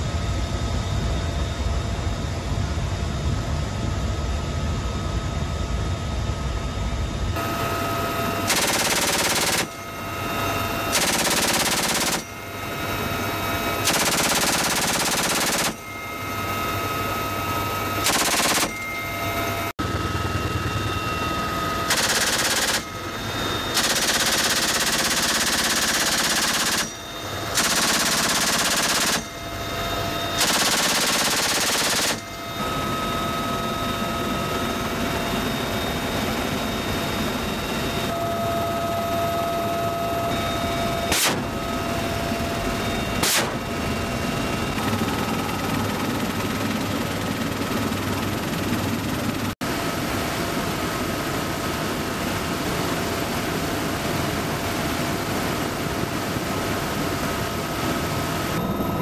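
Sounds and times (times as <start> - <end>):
helicopter turbine and rotor noise: 0.0 - 59.0
machine gun firing bursts: 8.5 - 9.8, 10.9 - 12.3, 13.8 - 15.8, 18.0 - 18.8, 21.9 - 22.9, 23.7 - 26.9, 27.5 - 29.3, 30.4 - 32.3, 41.1 - 41.5, 43.2 - 43.6.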